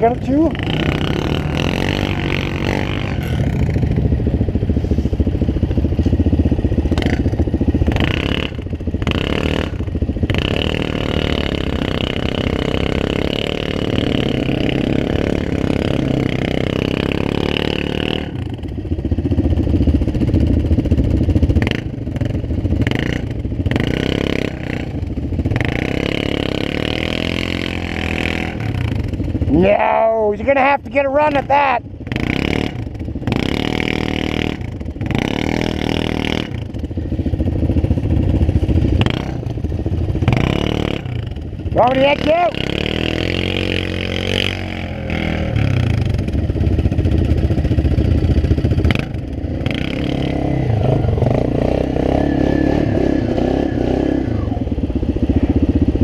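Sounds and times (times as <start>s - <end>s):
atv engine revving: 0.0s - 56.0s
tires spinning in snow: 50.1s - 54.7s.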